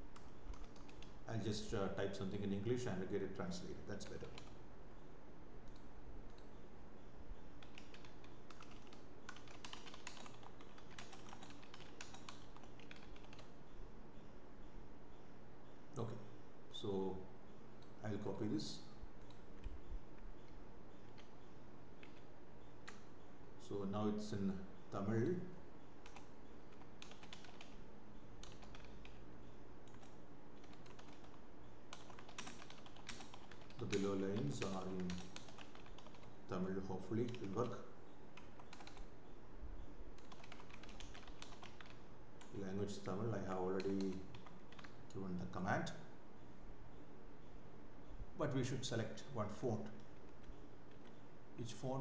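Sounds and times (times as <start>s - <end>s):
low background hum: 0.0s - 52.0s
keyboard typing: 0.1s - 1.2s, 3.9s - 4.6s, 5.6s - 6.6s, 7.6s - 13.6s, 20.4s - 23.1s, 26.0s - 27.8s, 28.4s - 29.2s, 29.8s - 39.1s, 40.2s - 45.2s, 49.8s - 51.2s.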